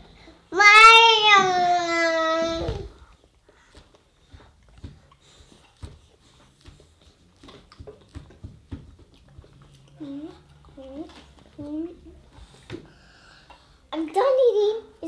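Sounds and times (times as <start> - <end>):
children eating snacks: 9.0 - 14.2.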